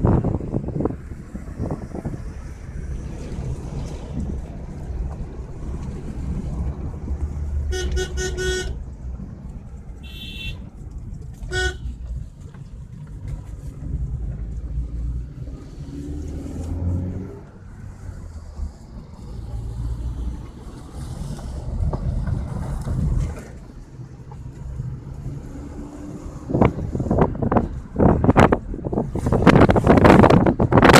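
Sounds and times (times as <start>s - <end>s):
car driving low rumble: 0.0s - 30.9s
car horn toots: 7.7s - 8.8s, 10.0s - 10.7s, 11.4s - 12.0s.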